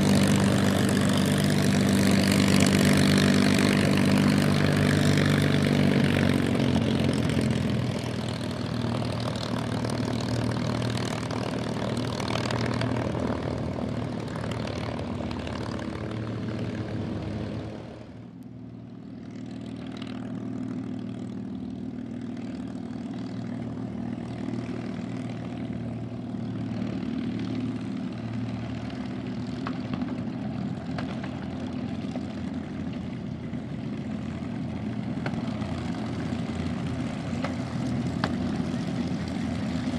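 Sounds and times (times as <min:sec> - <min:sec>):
propeller plane engine droning: 0:00.0 - 0:39.9
propeller plane taxiing: 0:00.0 - 0:39.9.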